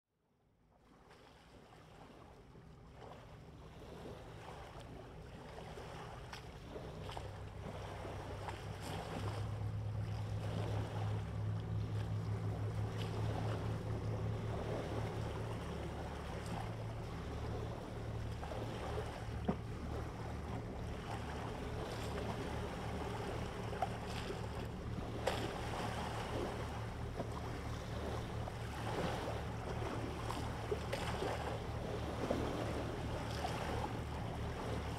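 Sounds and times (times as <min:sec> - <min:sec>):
wind: 0:00.1 - 0:34.9
sea noise: 0:00.8 - 0:34.9
boat engine drone: 0:00.9 - 0:34.9.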